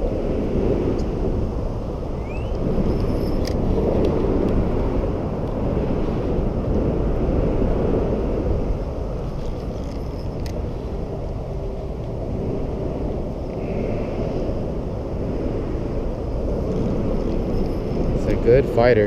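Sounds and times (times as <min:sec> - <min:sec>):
low rumbling noise: 0:00.0 - 0:19.0
rising chirp: 0:02.2 - 0:02.6.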